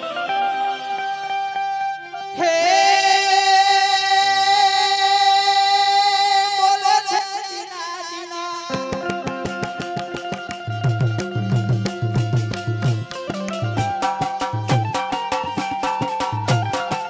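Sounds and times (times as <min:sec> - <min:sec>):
tabla drum strokes: 0:08.6 - 0:17.0.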